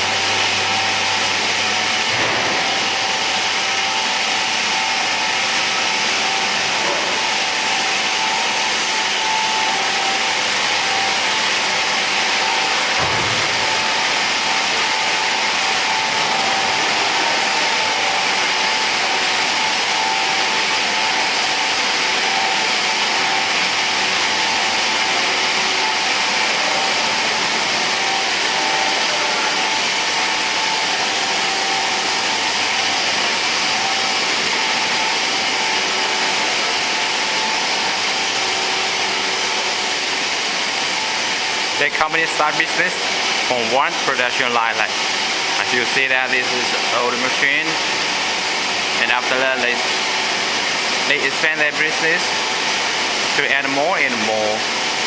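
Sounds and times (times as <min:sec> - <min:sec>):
machinery whirring with high whine: 0:00.0 - 0:55.0.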